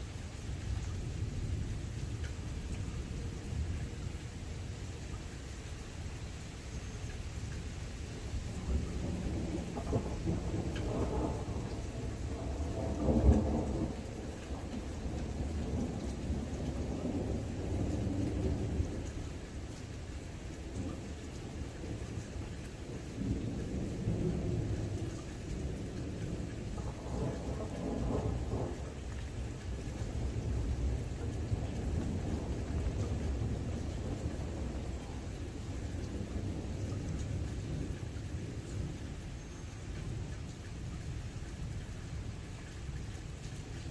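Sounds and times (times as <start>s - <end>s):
steady rain: 0.0s - 43.9s
thunder rumbling: 8.3s - 39.4s.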